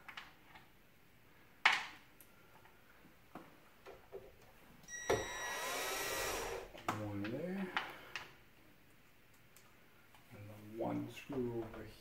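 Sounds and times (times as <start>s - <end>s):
cordless drill whirring: 4.9s - 6.8s.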